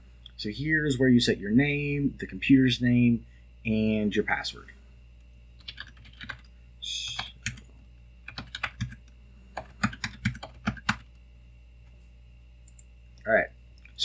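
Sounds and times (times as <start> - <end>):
computer keyboard typing: 5.6 - 11.1.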